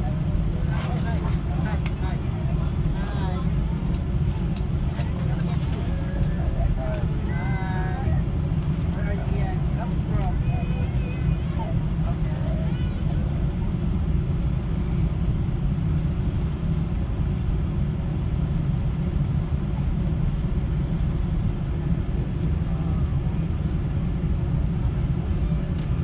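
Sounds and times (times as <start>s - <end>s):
airliner cabin rumble: 0.0s - 26.0s.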